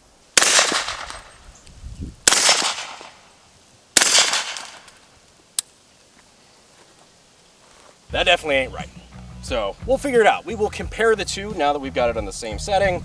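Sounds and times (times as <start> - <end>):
suppressed rifle shots with echo: 0.4 - 1.4, 2.2 - 3.2, 4.0 - 4.9.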